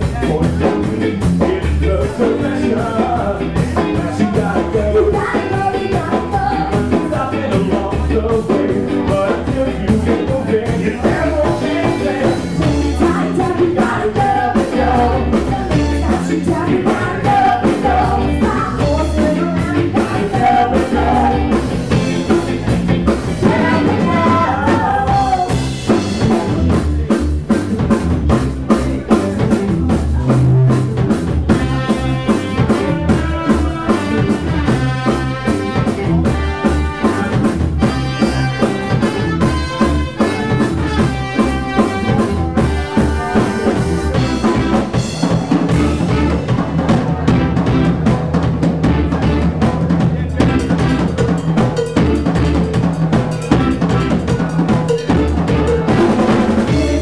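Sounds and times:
ska band playing live: 0:00.0 - 0:57.0
singing: 0:00.2 - 0:22.4, 0:23.4 - 0:25.8, 0:55.8 - 0:57.0.

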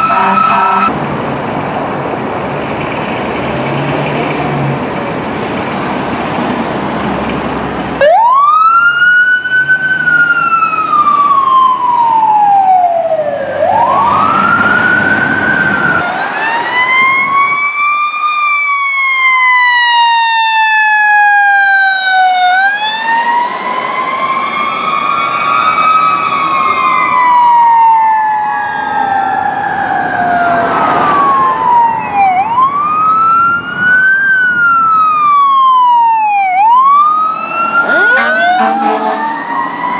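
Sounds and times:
mechanical siren wailing: 0:00.0 - 0:00.9, 0:08.0 - 0:39.9
diesel engine rumbling: 0:00.0 - 0:08.7.

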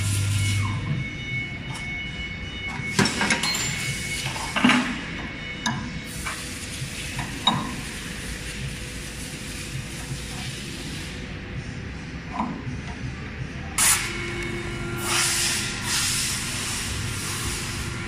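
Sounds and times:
steady high whine: 0:00.0 - 0:18.0.

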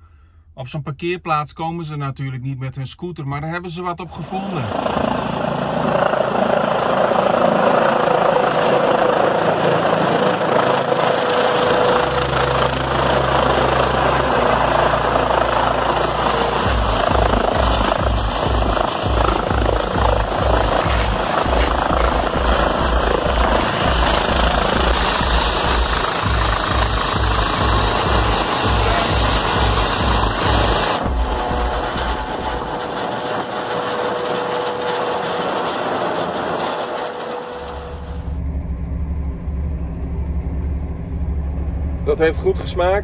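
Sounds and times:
helicopter rotor and turbine noise: 0:04.0 - 0:43.0
thin high whine: 0:07.2 - 0:40.8
background music with bass beat: 0:15.5 - 0:32.8.

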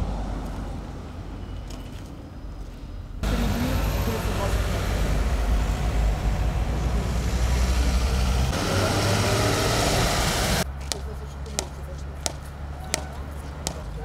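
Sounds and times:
road traffic passing: 0:00.0 - 0:14.0
mallet tapping curb stone: 0:10.8 - 0:14.0.

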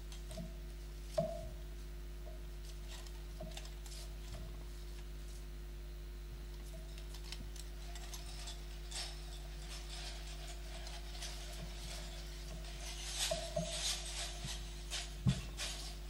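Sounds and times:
electrical hum: 0:00.0 - 0:16.0
faint clicks and rustles: 0:06.5 - 0:16.0.

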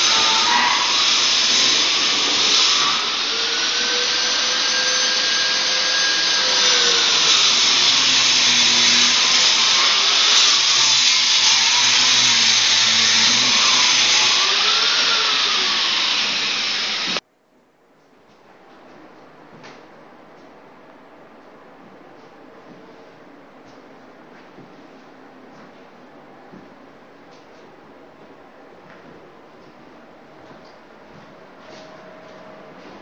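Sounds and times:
electric motor whirring: 0:00.0 - 0:17.2.

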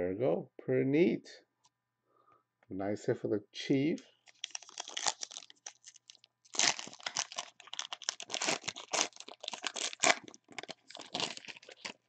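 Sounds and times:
plastic crinkling: 0:04.2 - 0:12.0.

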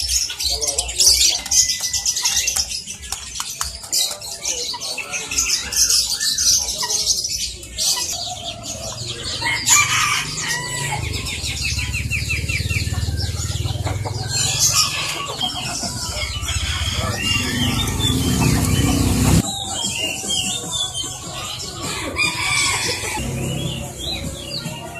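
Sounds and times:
caged birds chirping: 0:00.0 - 0:24.9
chickens clucking: 0:00.0 - 0:24.9
rooster crowing: 0:08.4 - 0:11.4, 0:16.0 - 0:19.4, 0:21.8 - 0:23.3.

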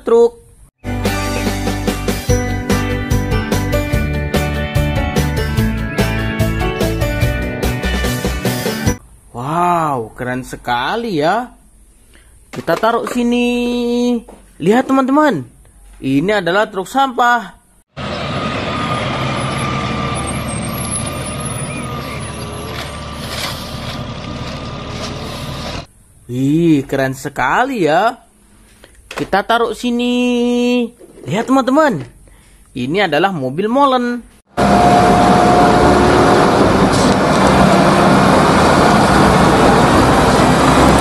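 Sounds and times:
diesel engine running: 0:18.0 - 0:25.9, 0:34.5 - 0:41.0
high whine: 0:34.6 - 0:41.0.

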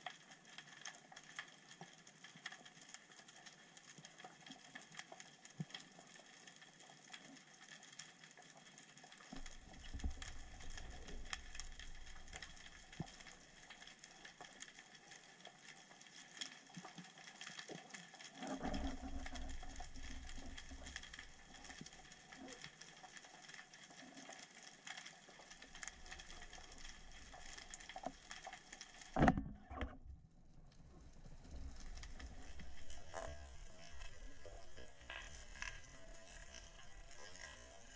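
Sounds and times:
low rumble of moving water: 0:00.0 - 0:37.9
underwater crackling and clicking: 0:00.0 - 0:37.9.

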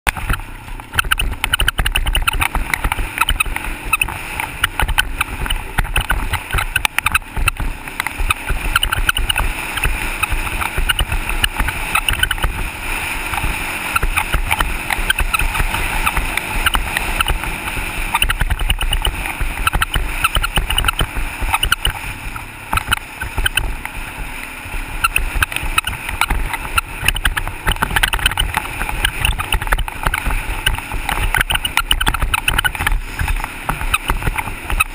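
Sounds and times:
knocks and rattles over bumps: 0:00.0 - 0:24.3, 0:25.0 - 0:34.9
atv engine running: 0:00.0 - 0:34.9
wind buffeting microphone: 0:00.0 - 0:34.9.

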